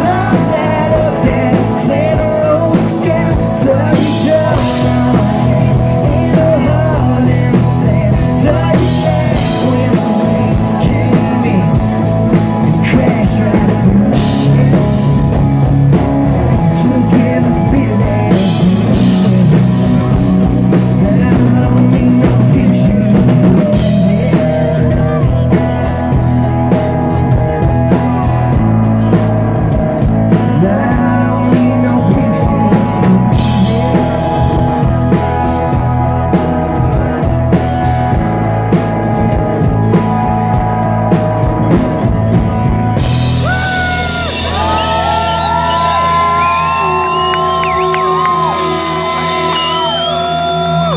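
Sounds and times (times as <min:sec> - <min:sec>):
man singing: 0:00.0 - 0:26.3, 0:30.0 - 0:37.4
country-rock band playing: 0:00.0 - 0:50.9
drum kit steady beat: 0:00.0 - 0:50.9.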